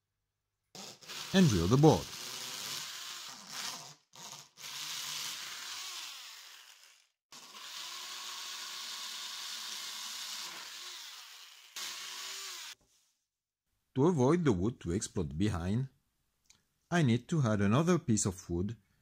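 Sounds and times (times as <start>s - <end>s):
drill bit scraping wood: 0.8s - 12.8s.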